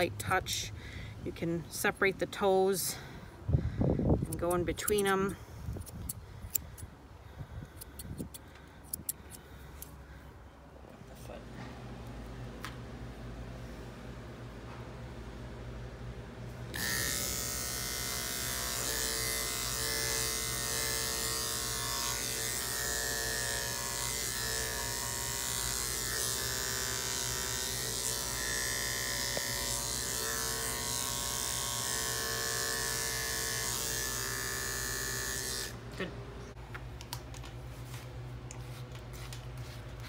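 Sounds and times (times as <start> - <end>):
electric pet clippers buzzing: 16.7 - 36.1.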